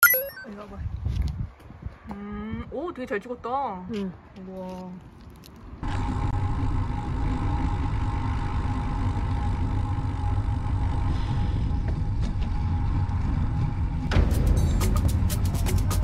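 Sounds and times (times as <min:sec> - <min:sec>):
wind buffeting microphone: 0:00.7 - 0:03.5
music: 0:14.1 - 0:16.0.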